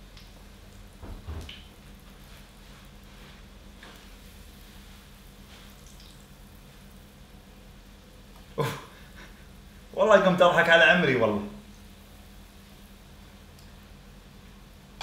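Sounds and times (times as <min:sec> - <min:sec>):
dough frying in hot oil: 0:00.0 - 0:15.0
knocks: 0:01.0 - 0:01.6.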